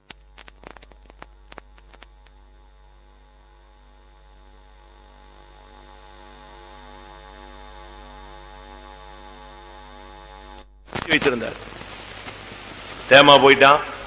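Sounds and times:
sharp crackling clicks: 0:00.0 - 0:02.4, 0:10.5 - 0:13.2
electrical mains hum: 0:00.0 - 0:14.0.

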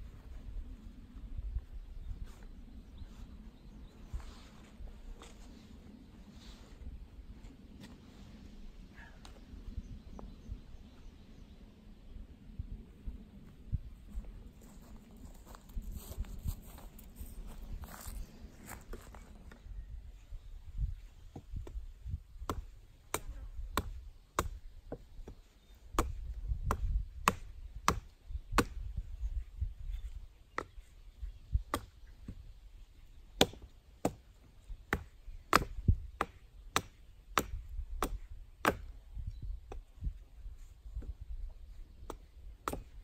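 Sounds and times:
axe chopping wood: 0:22.4 - 0:24.6, 0:25.2 - 0:28.9, 0:31.7 - 0:32.4, 0:33.4 - 0:34.3, 0:34.9 - 0:38.9, 0:42.0 - 0:43.0.

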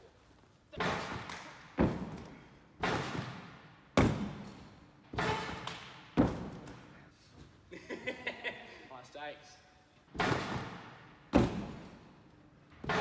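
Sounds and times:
thuds on tumble track: 0:00.8 - 0:06.8.

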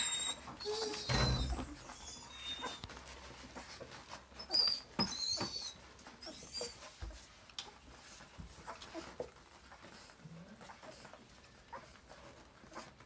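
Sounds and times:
puppies nursing: 0:00.0 - 0:13.0
puppies squeaking and whimpering: 0:00.0 - 0:13.0.

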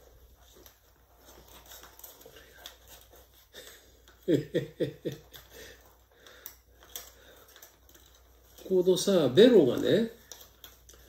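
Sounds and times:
paper rustling and clicking: 0:00.0 - 0:11.0
man laughing: 0:03.5 - 0:05.8.

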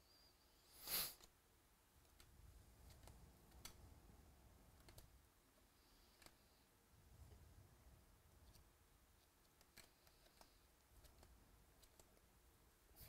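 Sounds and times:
cards swishing: 0:00.8 - 0:01.3.

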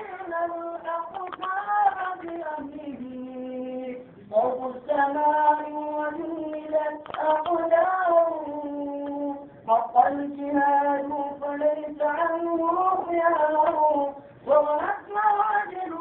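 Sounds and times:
high voice singing unaccompanied: 0:00.0 - 0:16.0.

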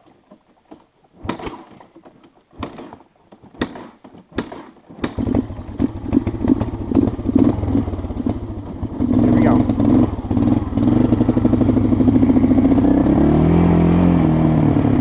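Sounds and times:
sharp knocks and clatters: 0:00.0 - 0:07.5
vehicle engine running: 0:05.0 - 0:15.0.

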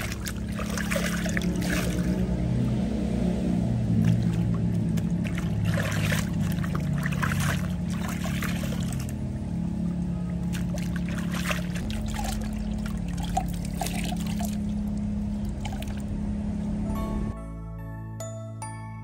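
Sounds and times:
water splashing in a plastic basin: 0:00.0 - 0:02.7, 0:03.8 - 0:09.3, 0:10.3 - 0:16.0.

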